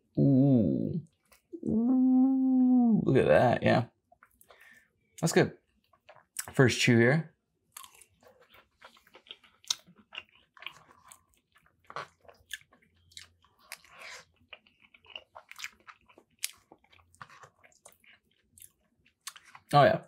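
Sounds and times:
person chewing wet mouth smacks: 0:07.8 - 0:19.6.

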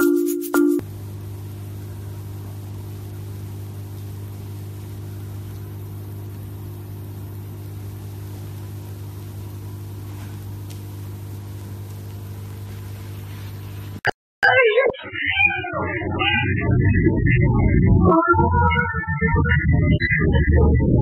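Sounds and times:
music with shaker: 0:00.0 - 0:00.8
steady low hum: 0:15.6 - 0:21.0.

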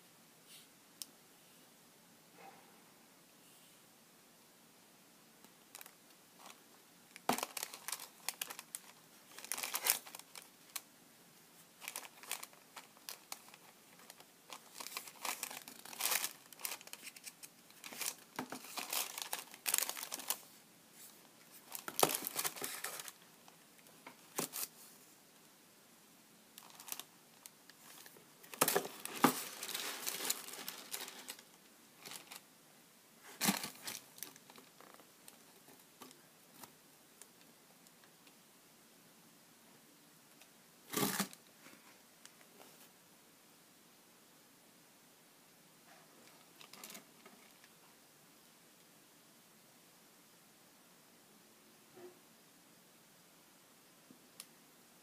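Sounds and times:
tissue paper crinkling: 0:07.3 - 0:10.8, 0:11.8 - 0:20.6, 0:21.5 - 0:23.2, 0:24.3 - 0:24.8, 0:26.6 - 0:27.1, 0:27.8 - 0:32.4.

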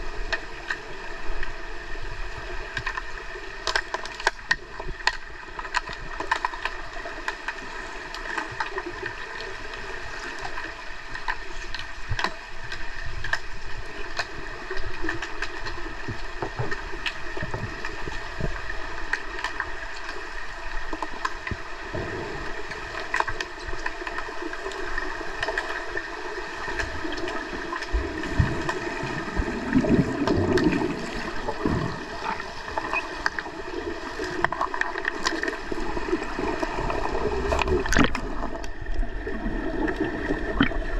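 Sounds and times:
underwater hiss and hum: 0:00.0 - 0:40.9
sharp underwater clicks and knocks: 0:02.7 - 0:08.8, 0:11.2 - 0:13.5, 0:14.1 - 0:20.2, 0:37.4 - 0:39.0
bubbling rumbles: 0:27.0 - 0:40.9.

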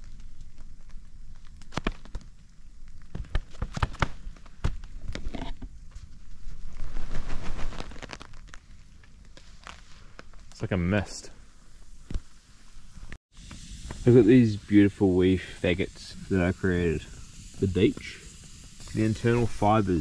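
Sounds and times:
rain hiss: 0:09.6 - 0:20.0.

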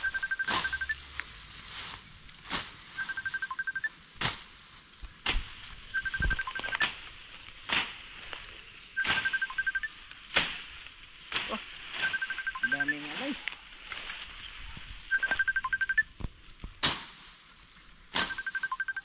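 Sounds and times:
high pipping bird call: 0:00.0 - 0:01.0, 0:06.0 - 0:06.9, 0:09.0 - 0:10.0, 0:12.0 - 0:13.4, 0:15.1 - 0:16.1, 0:18.2 - 0:19.0
grass and ferns rustling: 0:00.0 - 0:19.0.

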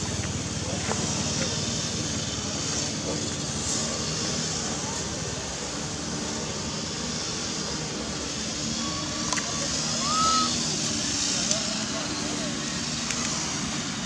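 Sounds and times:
high whistle-like call: 0:08.8 - 0:10.7.

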